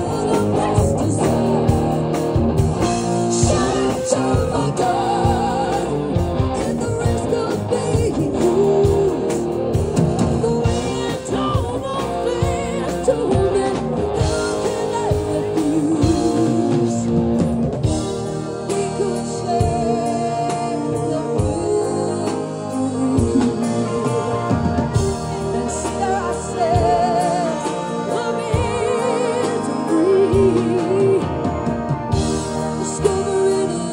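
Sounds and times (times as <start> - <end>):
woman singing: 0.0 - 2.1, 3.3 - 9.5, 10.2 - 17.3, 18.3 - 33.9
live rock band: 0.0 - 33.9.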